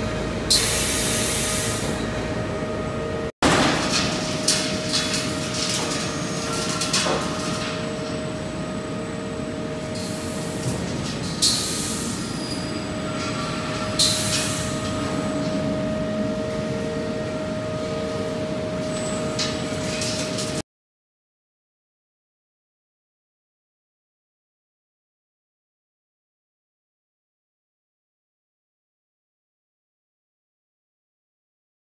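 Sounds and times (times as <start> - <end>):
conveyor mechanical hum: 0.0 - 20.6.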